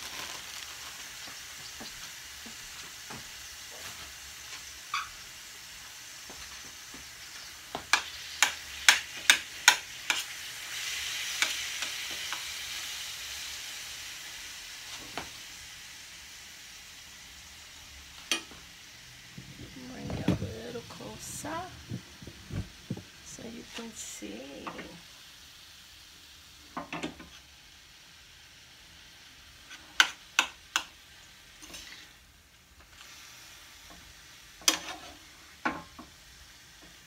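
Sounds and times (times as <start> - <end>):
meat sizzling in a frying pan: 0.0 - 37.0.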